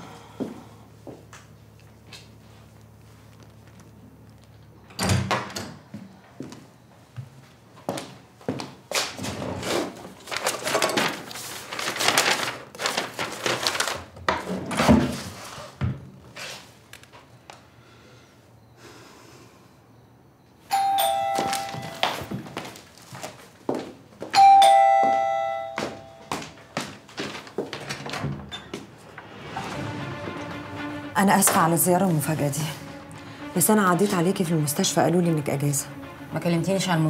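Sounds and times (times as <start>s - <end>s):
ding-dong doorbell: 20.7s - 22.3s, 24.4s - 26.5s.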